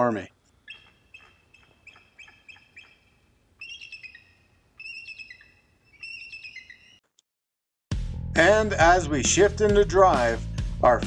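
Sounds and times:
eagle chirping: 0:00.4 - 0:07.0
eagle chittering calls: 0:00.6 - 0:07.0.

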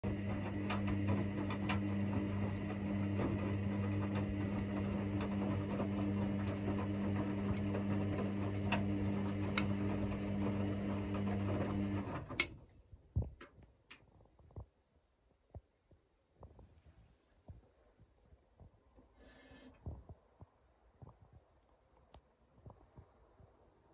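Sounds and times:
washing machine motor hum: 0:00.0 - 0:13.4.

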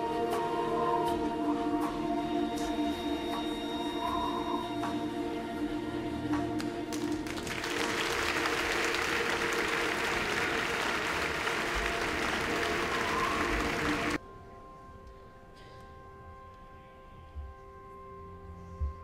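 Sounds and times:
sustained music tones: 0:00.0 - 0:19.0
audience applauding: 0:06.6 - 0:14.2.

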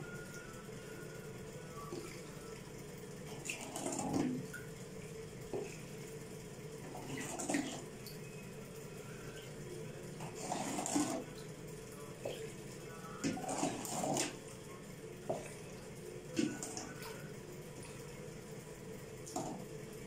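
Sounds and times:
liquid pouring and splashing: 0:03.2 - 0:06.2, 0:06.8 - 0:08.2, 0:10.2 - 0:18.2.

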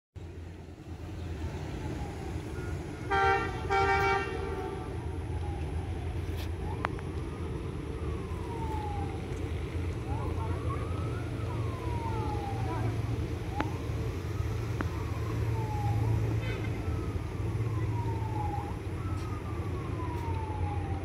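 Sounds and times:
locomotive air horn: 0:03.0 - 0:04.9, 0:16.3 - 0:16.8.

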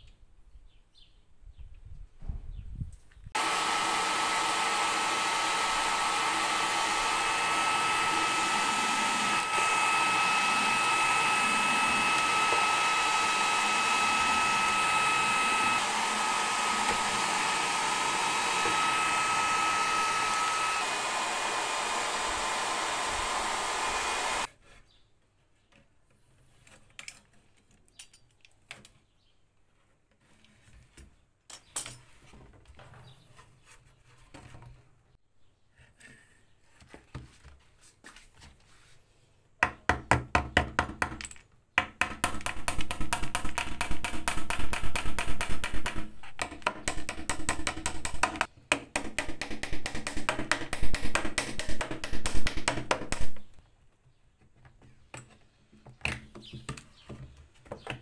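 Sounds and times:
hot-air blower whining: 0:03.4 - 0:24.5.

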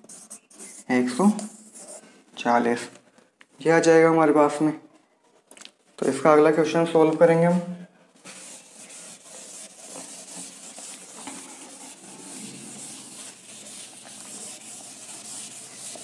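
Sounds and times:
pen scratching while writing: 0:08.4 - 0:16.0.

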